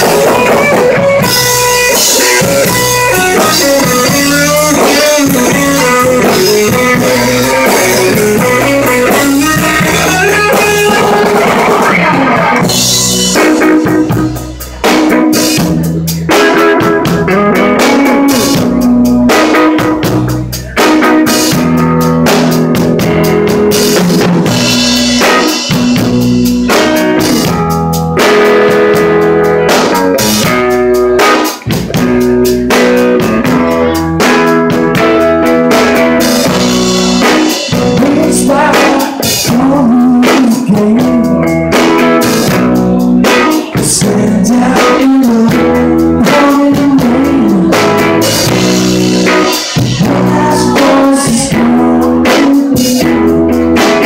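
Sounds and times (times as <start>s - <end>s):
drum kit steady beat: 0.0s - 54.0s
electric guitar: 0.0s - 54.0s.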